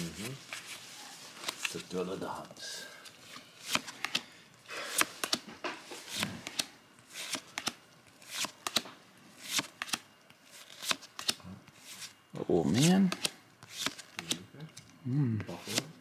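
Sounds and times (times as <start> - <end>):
trading cards flicked and slid: 3.3 - 4.3, 4.9 - 14.4, 15.5 - 15.9.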